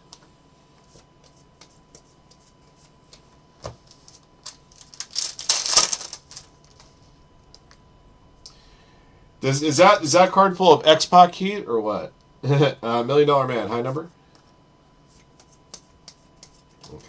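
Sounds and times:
foil card pack crinkling: 3.8 - 6.9
trading cards clicking: 4.4 - 6.9.

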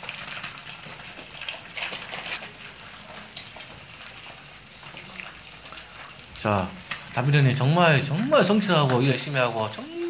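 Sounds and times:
eggs sizzling in a pan: 0.0 - 10.0.

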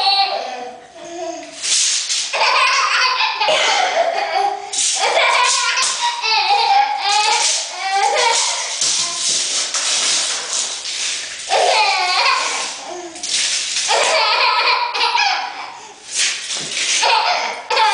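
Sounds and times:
baby laughing: 0.0 - 0.8, 2.3 - 9.3, 11.5 - 13.3, 13.9 - 15.8, 16.9 - 17.9.

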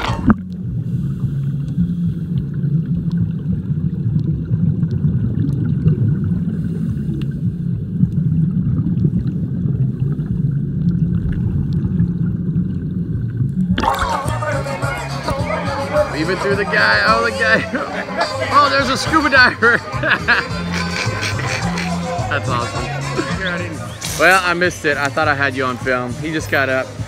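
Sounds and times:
muffled underwater rumble: 0.0 - 18.5.

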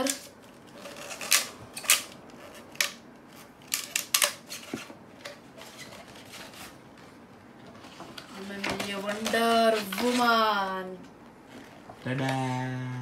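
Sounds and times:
paper scraping and rustling: 5.6 - 6.8, 7.7 - 10.5.

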